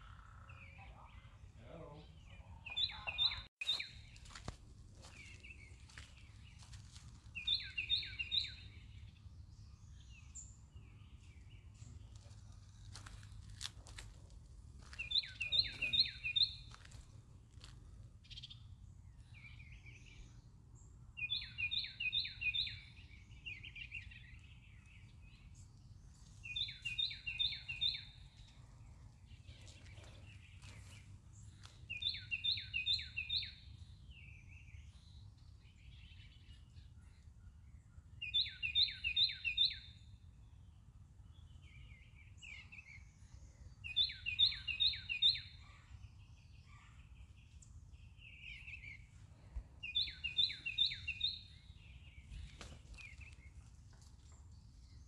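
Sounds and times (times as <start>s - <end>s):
songbird singing descending notes: 7.3s - 11.7s, 21.2s - 28.5s, 31.9s - 36.6s, 38.2s - 40.2s, 41.4s - 46.6s, 49.8s - 53.5s.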